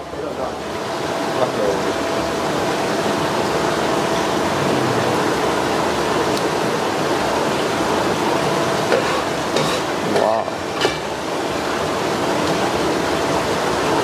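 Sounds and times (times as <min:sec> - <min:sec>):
tap water splashing: 0:08.8 - 0:11.1, 0:12.4 - 0:12.8.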